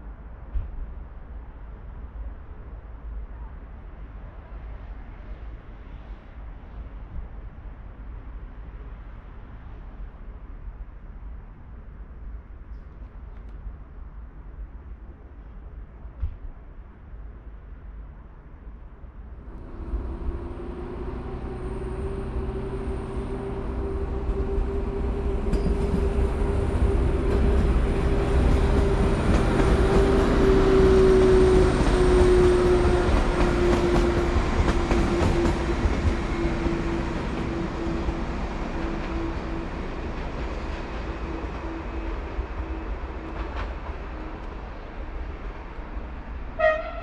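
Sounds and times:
train engine hum with rail noise: 0.0s - 47.0s.

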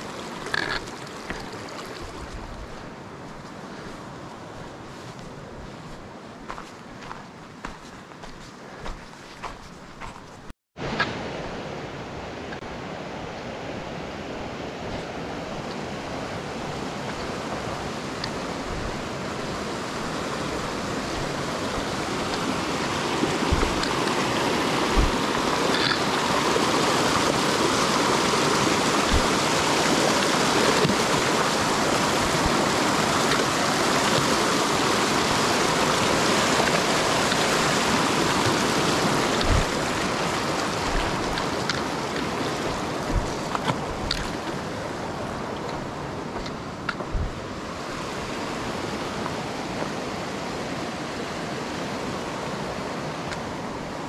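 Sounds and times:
rushing flowing water: 0.0s - 10.2s, 10.8s - 54.0s.

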